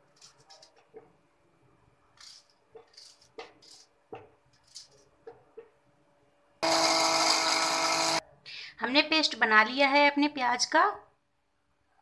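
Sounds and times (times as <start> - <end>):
onion pieces rustling: 2.1 - 4.0.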